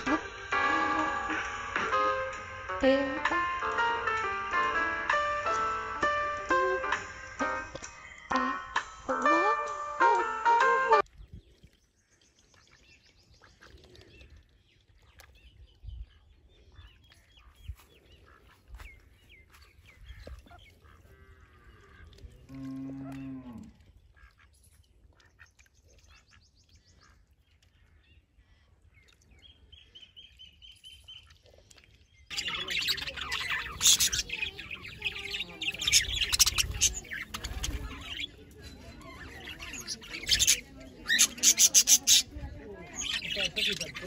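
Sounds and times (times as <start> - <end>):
small birds chirping: 0.0 - 44.0
cow mooing: 22.4 - 23.7.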